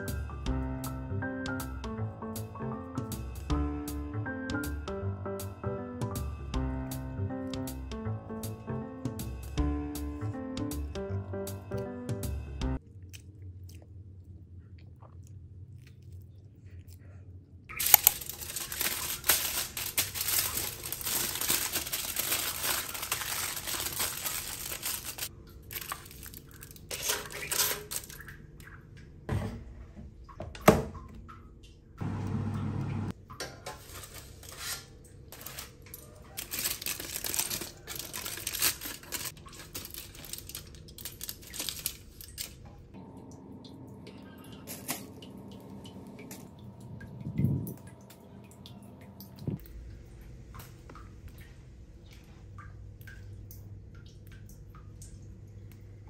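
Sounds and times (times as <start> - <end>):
aluminium foil crinkling: 17.7 - 28.3, 33.6 - 42.8.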